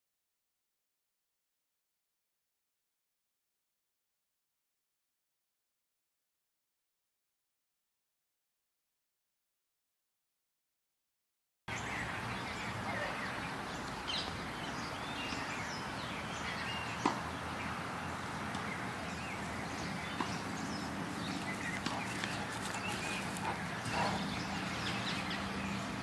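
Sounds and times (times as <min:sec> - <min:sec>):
birds chirping: 0:11.7 - 0:26.0.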